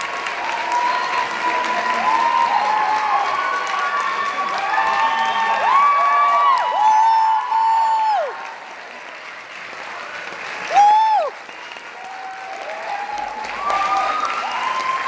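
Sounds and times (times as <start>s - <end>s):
cheering shouts: 0.0s - 8.9s, 10.5s - 15.0s
audience applauding: 0.0s - 15.0s
shrill whoop: 1.9s - 8.4s, 12.0s - 15.0s.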